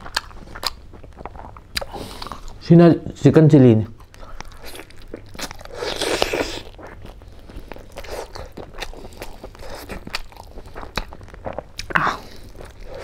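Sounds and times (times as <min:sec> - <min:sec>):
wet chewing smacks: 0:03.9 - 0:13.0
man crunching fried chicken: 0:04.0 - 0:13.0.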